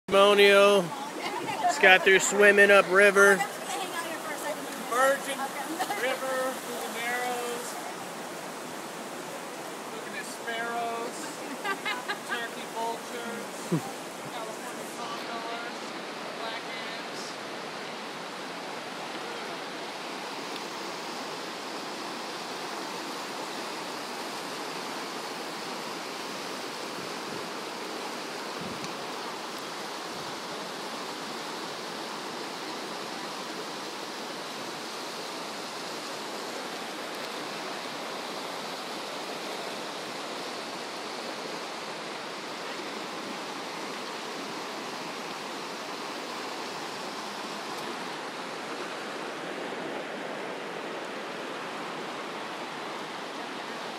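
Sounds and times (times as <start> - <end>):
water rushing over rocks: 0.1 - 53.9.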